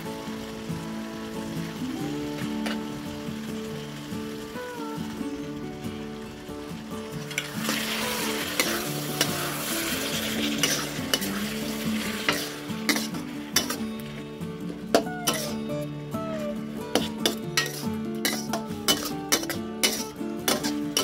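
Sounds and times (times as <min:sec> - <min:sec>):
chicken sizzling in hot oil: 0:00.0 - 0:21.0
metal spatula scraping a wok: 0:07.2 - 0:15.6, 0:16.9 - 0:21.0.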